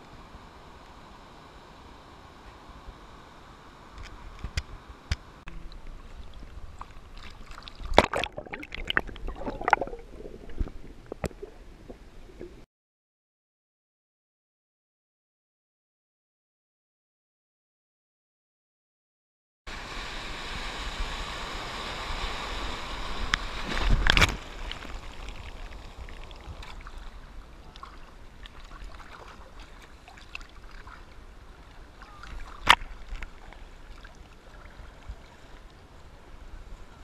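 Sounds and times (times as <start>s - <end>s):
water lapping and sloshing: 5.8s - 12.6s, 23.1s - 36.4s
seawater rushing and splashing: 6.1s - 12.6s, 19.7s - 36.8s.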